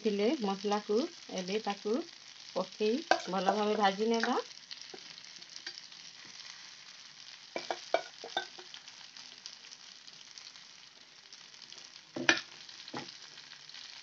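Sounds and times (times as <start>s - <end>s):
chicken sizzling in oil: 0.0s - 14.0s
spoon knocking against pan: 3.0s - 3.3s, 7.6s - 8.7s, 12.2s - 13.1s.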